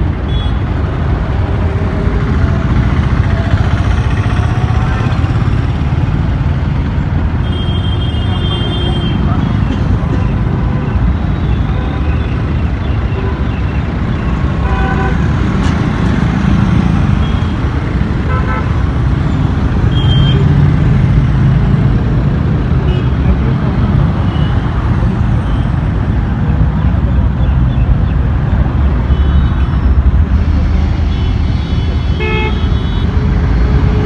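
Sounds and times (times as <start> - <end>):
road traffic rumble: 0.0 - 34.0
vehicle horn toots: 31.1 - 33.1.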